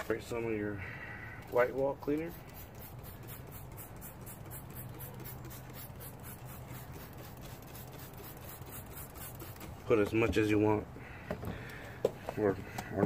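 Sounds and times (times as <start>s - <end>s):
trigger spray bottle spraying: 1.4s - 9.8s.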